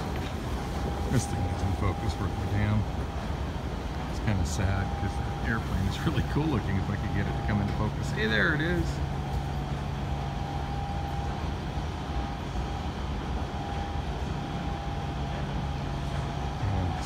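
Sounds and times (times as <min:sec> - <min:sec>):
ventilation rush and hum: 0:00.0 - 0:17.0.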